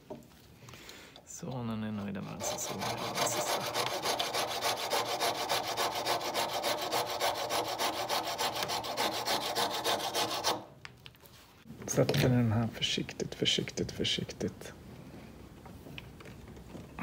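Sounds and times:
saw rasping through wood: 2.2s - 10.7s.

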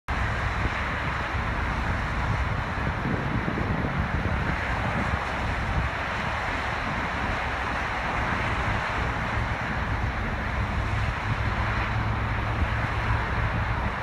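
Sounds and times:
wind on microphone: 0.1s - 14.0s.

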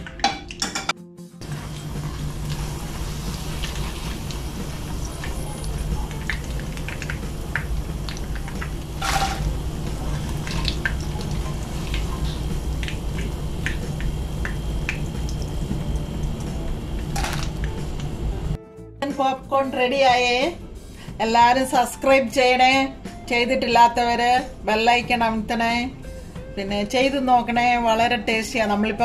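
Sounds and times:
hot oil crackling in frying pan: 1.4s - 18.4s
steady low hum: 1.4s - 18.6s.

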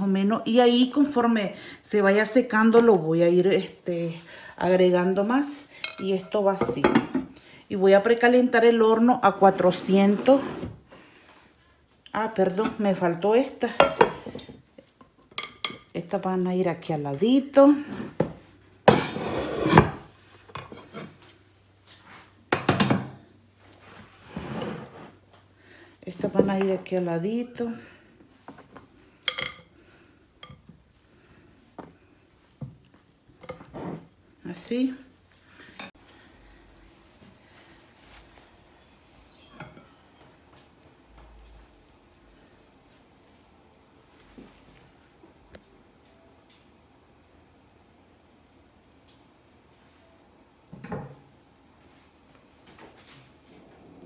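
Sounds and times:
faint sizzle of juices: 7.3s - 19.5s, 20.1s - 22.6s, 23.2s - 54.0s
pot scraping on wooden board: 9.7s - 10.8s, 17.9s - 21.2s, 24.1s - 25.3s.

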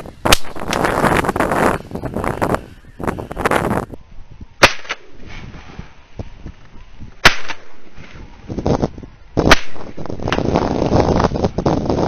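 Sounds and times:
shotgun shots: 4.6s - 5.1s, 7.2s - 7.8s, 9.5s - 10.4s.

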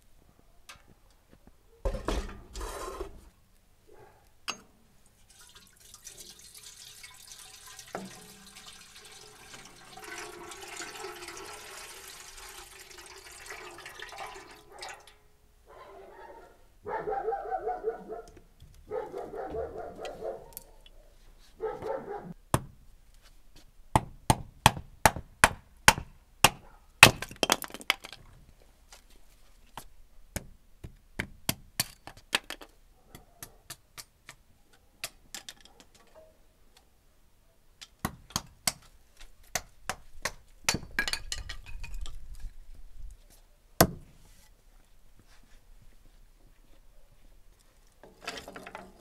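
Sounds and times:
axe chopping into block: 24.0s - 27.4s, 43.8s - 44.0s
axe splitting wood: 24.0s - 27.8s, 38.0s - 38.9s, 43.8s - 44.1s.

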